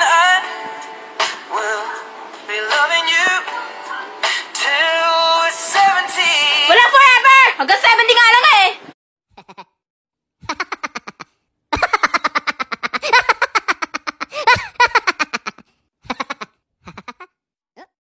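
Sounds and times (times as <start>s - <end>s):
kids laughing: 10.4s - 17.3s.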